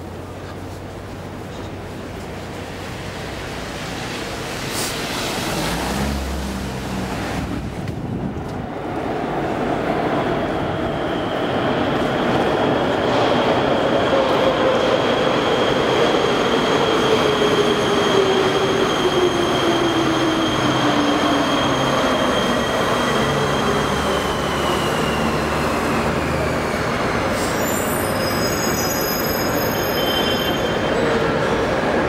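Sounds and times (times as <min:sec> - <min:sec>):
high brake squeals: 0:16.8 - 0:26.1, 0:27.2 - 0:31.5.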